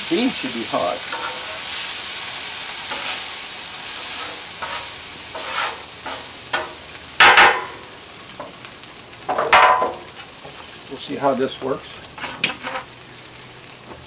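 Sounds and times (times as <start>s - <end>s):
beans sizzling on a griddle: 0.0s - 14.0s
metal utensil scraping on steel: 1.1s - 1.7s, 3.9s - 6.7s.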